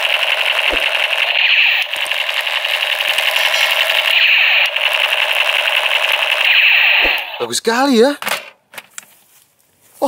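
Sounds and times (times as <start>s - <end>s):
toy gun rapid-fire buzzing rattle: 0.0s - 7.5s.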